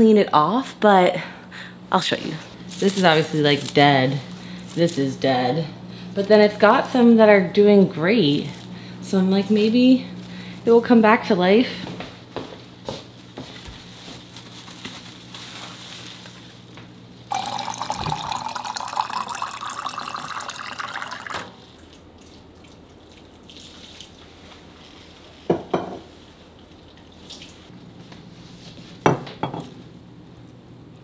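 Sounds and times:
tap water running into glass jar: 17.3 - 21.6.

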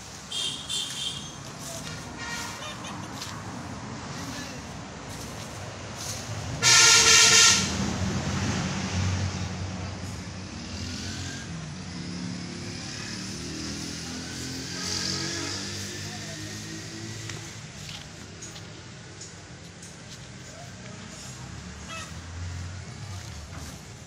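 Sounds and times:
loud vehicle horn blast: 0.3 - 2.8, 6.6 - 7.8, 14.6 - 15.9.

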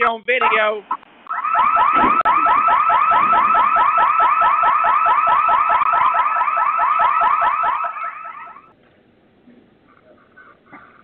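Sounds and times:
electronic alarm siren whooping: 1.3 - 8.7.

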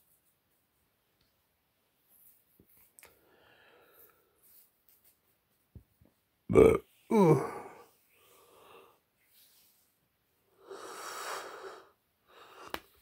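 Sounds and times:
man breathing close to microphone: 10.5 - 13.0.

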